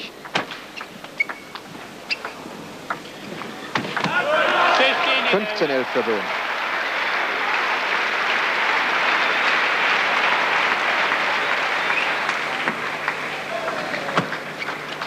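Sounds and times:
crowd applauding: 0:03.9 - 0:15.0.

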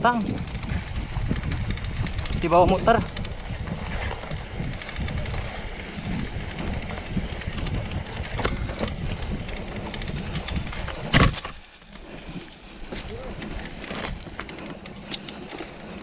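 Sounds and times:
wind buffeting microphone: 0:00.0 - 0:11.4
bike tyres rumbling on trail: 0:00.0 - 0:16.0
light rattles: 0:00.0 - 0:16.0.

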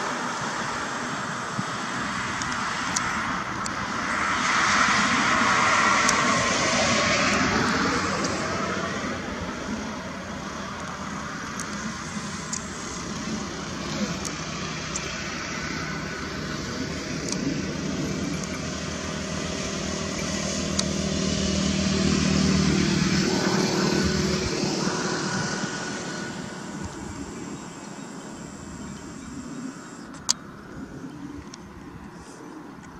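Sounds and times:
vehicle engines on highway: 0:00.0 - 0:32.9.

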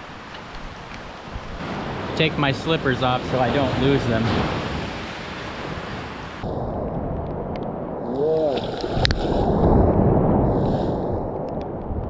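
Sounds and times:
ocean surf rushing: 0:00.0 - 0:07.0.

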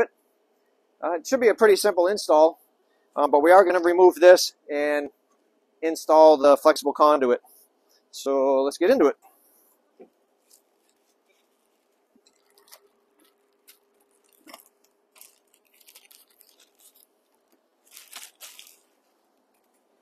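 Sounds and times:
plastic bag crinkling: 0:10.4 - 0:20.0.

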